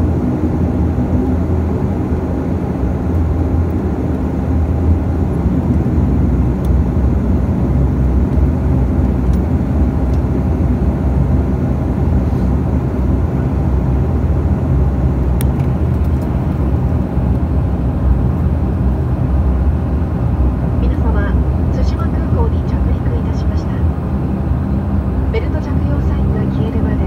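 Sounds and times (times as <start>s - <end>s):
turboprop engines droning: 0.0s - 27.0s.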